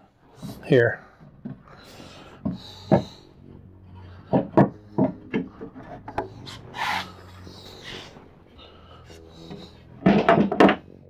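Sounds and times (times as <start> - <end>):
wood rubbing: 0.0 - 11.0
wooden parts knocking: 1.2 - 3.2, 4.2 - 6.5, 9.4 - 10.9.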